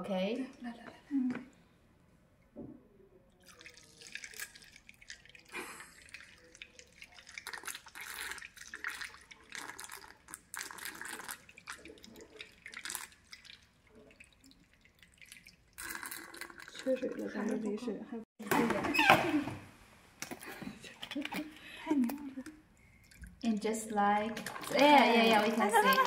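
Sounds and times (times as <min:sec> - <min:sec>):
water pouring into plastic funnel: 0:03.4 - 0:17.8, 0:24.2 - 0:26.0.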